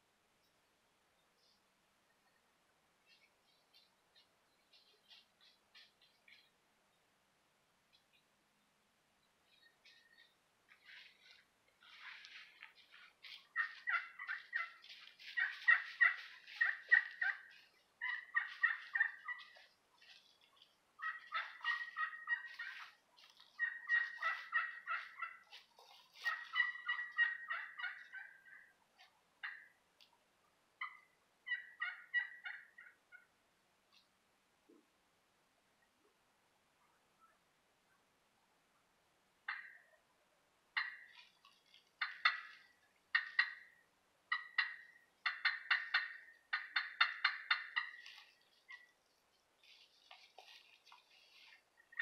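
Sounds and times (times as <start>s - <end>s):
turkey pot call yelps: 13.2s - 28.8s, 29.4s - 29.8s, 30.8s - 33.3s, 39.5s - 40.0s, 40.8s - 41.3s, 42.0s - 48.9s, 50.0s - 52.0s.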